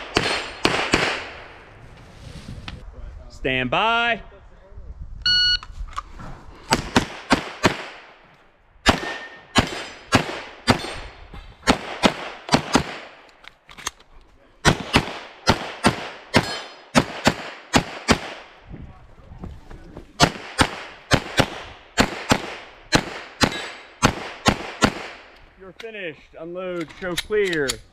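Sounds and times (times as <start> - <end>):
pistol gunshots: 0.0 - 1.5, 6.7 - 8.2, 8.8 - 13.2, 14.6 - 18.6, 20.2 - 25.3.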